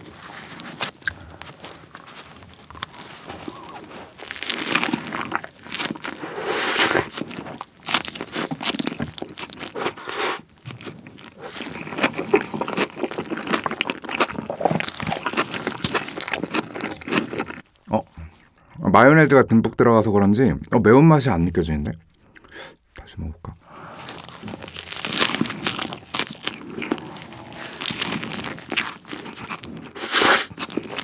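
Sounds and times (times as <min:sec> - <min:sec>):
biting into sandwich: 0:00.0 - 0:17.7, 0:23.9 - 0:31.0
crunchy wet chewing: 0:00.0 - 0:18.7, 0:23.6 - 0:31.0.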